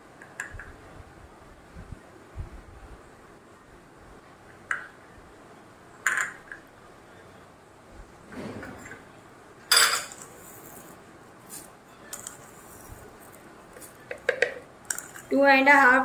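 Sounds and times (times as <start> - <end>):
dishes and spoon clinking: 9.7 - 15.3.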